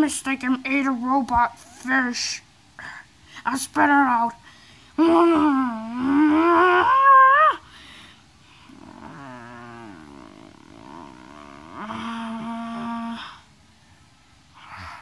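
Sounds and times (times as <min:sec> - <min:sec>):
child growling like an animal: 0:05.0 - 0:07.6, 0:08.7 - 0:13.4.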